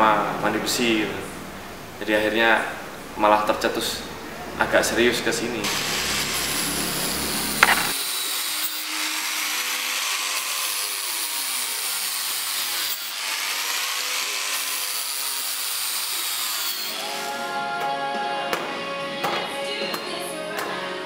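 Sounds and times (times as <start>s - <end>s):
tool scraping metal sheet: 5.7s - 8.9s
sharp click: 7.6s - 7.9s
faint music: 16.9s - 21.0s.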